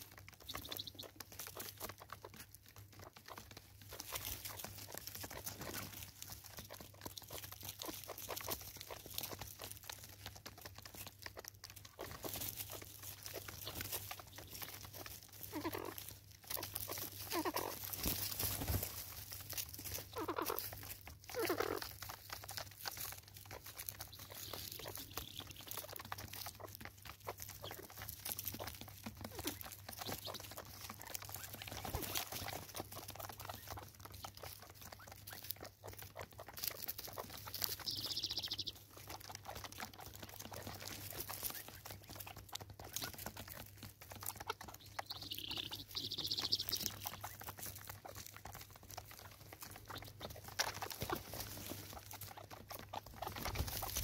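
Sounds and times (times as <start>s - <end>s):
beak tapping and seed crunching: 0.0s - 54.0s
high bird calls: 24.1s - 26.0s, 37.7s - 38.8s, 44.7s - 47.4s.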